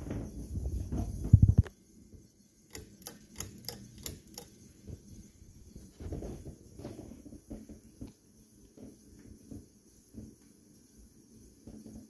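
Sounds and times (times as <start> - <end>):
ceiling fan humming: 0.0 - 12.0.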